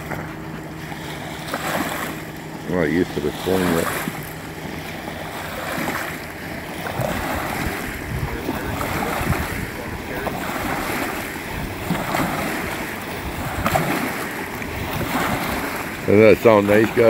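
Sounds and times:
small waves lapping on riverbank: 0.0s - 17.0s
wind buffeting microphone: 0.0s - 17.0s.

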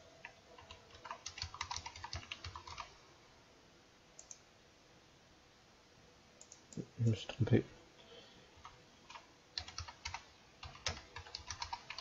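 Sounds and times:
fast typing on keyboard: 0.6s - 2.9s, 8.6s - 12.0s.

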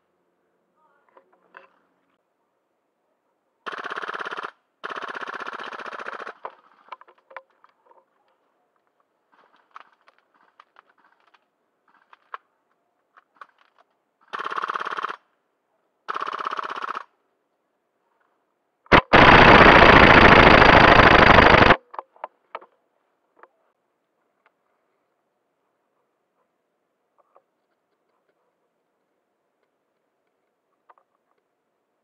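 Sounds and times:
airsoft rifle bursts: 18.9s - 21.8s.

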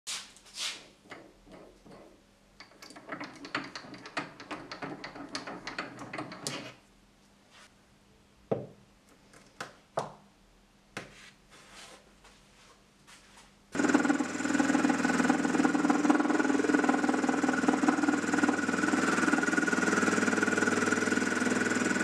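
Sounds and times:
metal pieces knocking on wood: 1.1s - 6.7s
metal parts clicking and rattling: 2.6s - 6.7s.

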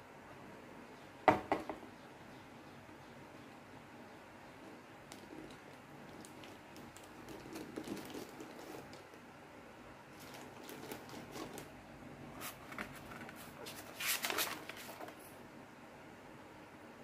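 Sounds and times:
paper crinkling: 5.1s - 9.2s, 10.1s - 15.4s
plastic packaging rustling: 5.1s - 9.2s, 10.1s - 15.4s.

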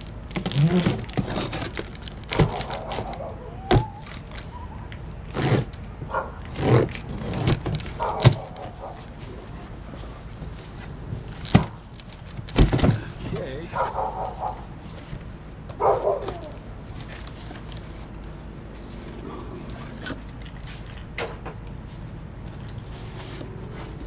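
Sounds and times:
packing tape tearing: 0.0s - 4.5s, 5.3s - 5.8s, 6.5s - 8.8s
cardboard flaps scraping: 0.3s - 4.5s, 5.3s - 5.8s, 6.5s - 18.1s.

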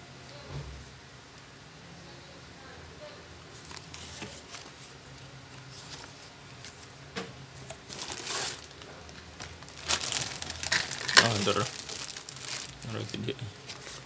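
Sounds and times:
packaging rustling and crinkling: 3.6s - 7.0s, 7.6s - 14.0s.

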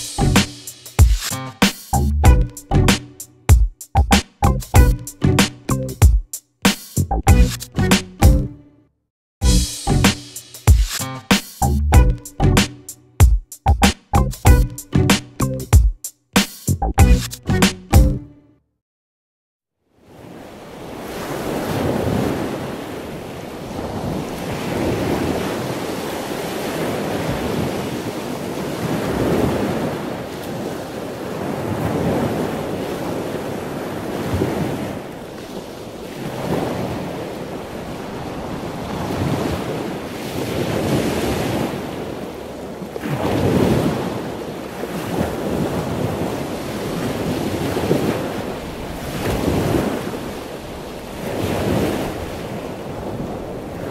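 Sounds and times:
ocean waves washing: 20.0s - 53.9s.

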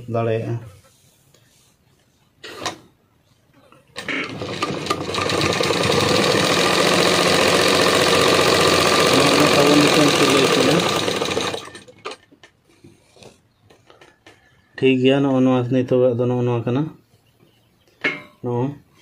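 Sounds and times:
sewing machine stitching: 4.0s - 12.2s.

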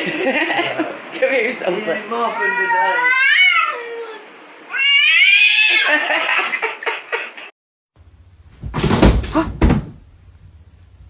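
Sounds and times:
cat yowling: 2.3s - 5.9s
dull thumps: 8.5s - 10.5s.

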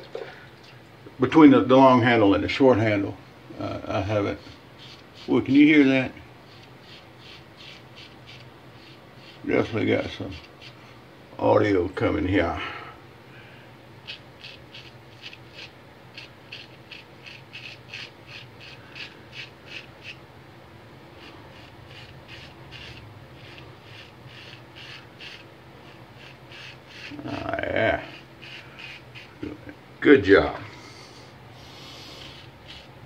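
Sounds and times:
razor scraping stubble: 3.9s - 11.0s, 14.0s - 20.2s, 21.1s - 29.8s, 31.6s - 33.0s.

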